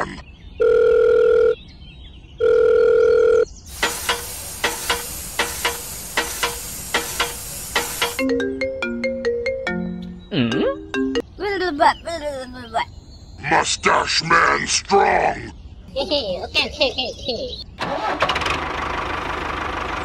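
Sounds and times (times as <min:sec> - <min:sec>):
telephone ringing: 0:00.6 - 0:01.6, 0:02.4 - 0:03.5
hiss: 0:03.7 - 0:08.2
steady ticking: 0:03.8 - 0:08.3.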